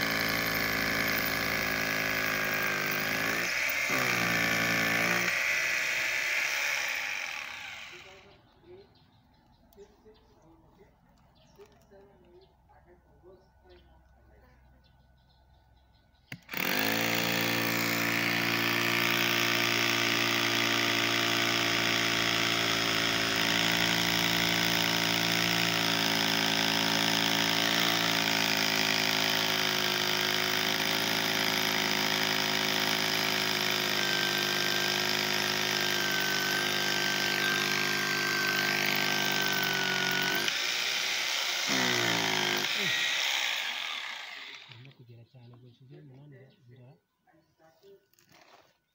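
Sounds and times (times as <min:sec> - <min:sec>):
hammer drill drilling into concrete: 0:00.0 - 0:08.3, 0:16.3 - 0:44.9.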